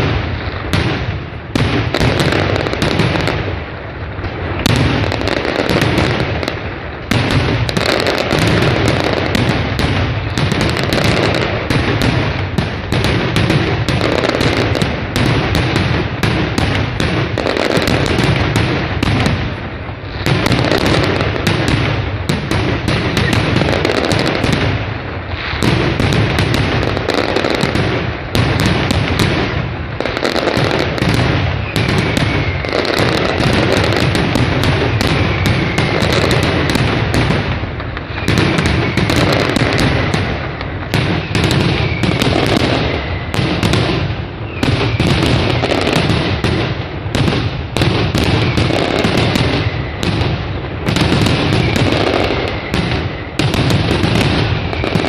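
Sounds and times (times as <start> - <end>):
firecracker bangs: 0.0 - 55.0
whistling shells: 31.5 - 33.9, 34.9 - 36.3, 38.0 - 39.6, 41.0 - 43.4, 44.4 - 45.7, 51.4 - 53.4.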